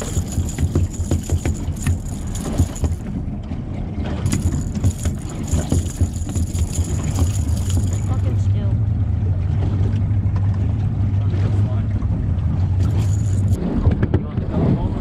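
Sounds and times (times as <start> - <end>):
knocks and rattles on deck: 0.0 - 3.2, 4.2 - 8.2
boat engine low rumble: 0.0 - 15.0.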